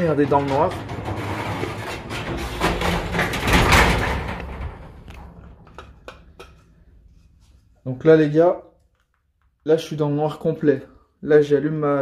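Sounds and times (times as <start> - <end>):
garage door rumbling shut: 0.0 - 6.2.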